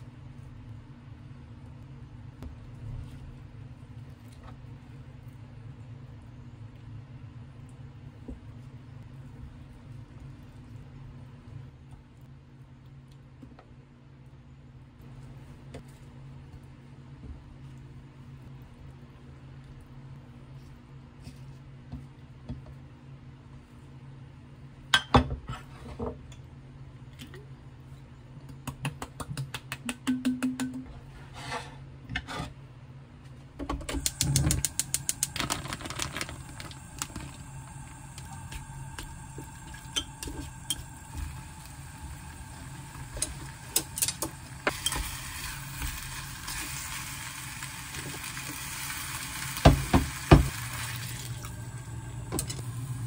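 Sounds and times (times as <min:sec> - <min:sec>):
spatula scraping in a pot: 0:31.1 - 0:32.6.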